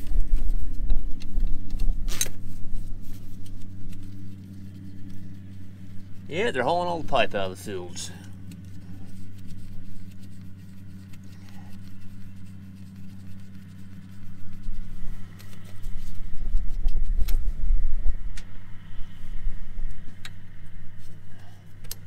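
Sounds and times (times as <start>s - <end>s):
deep rumble: 0.0s - 22.0s
engine low hum: 0.0s - 22.0s.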